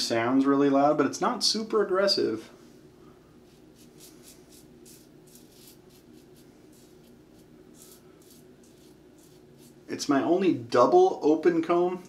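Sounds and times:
razor rasping through stubble: 3.4 - 9.9.

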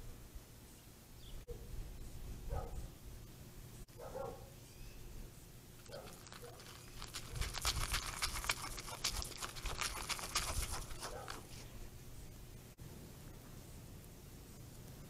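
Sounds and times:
deer crunching food: 5.7 - 11.9.

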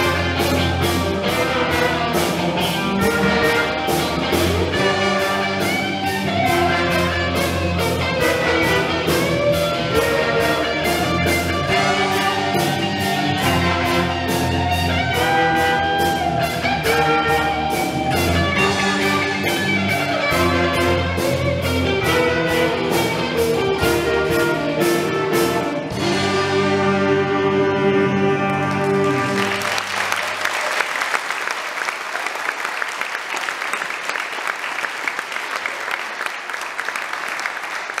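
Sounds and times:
school band playing: 0.0 - 32.6
audience applauding: 28.5 - 38.0.

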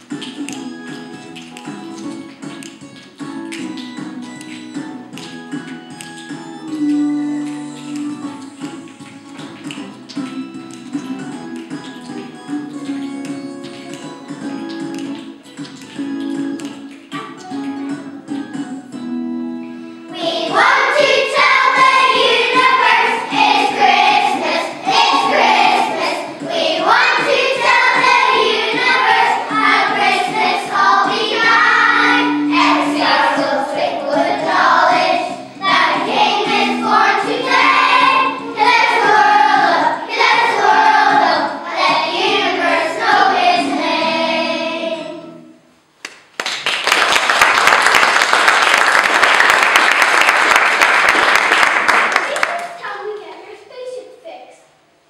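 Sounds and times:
children singing together: 20.1 - 45.4
audience applause: 46.4 - 52.8.

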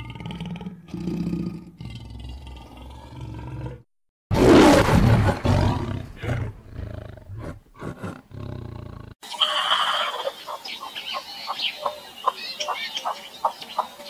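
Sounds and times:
animal grunts: 0.0 - 9.2
large animal roaring: 0.0 - 9.2.

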